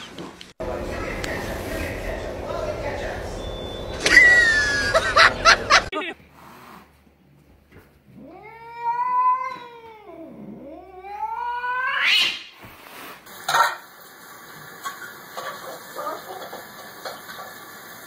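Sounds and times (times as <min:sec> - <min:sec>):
cat meowing: 0:08.2 - 0:12.2.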